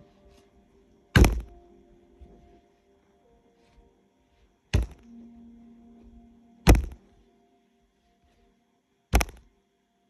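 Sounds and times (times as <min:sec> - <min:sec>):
faint steady hum: 0:00.0 - 0:10.0
sharp knocks: 0:01.2 - 0:01.6, 0:04.8 - 0:05.1, 0:06.7 - 0:07.0, 0:09.2 - 0:09.4.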